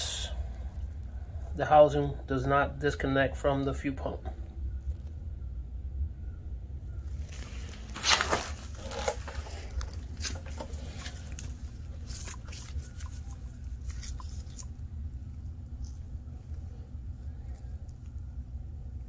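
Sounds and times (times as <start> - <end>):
low hum: 0.0 - 19.0
metal parts scraping: 7.3 - 12.2.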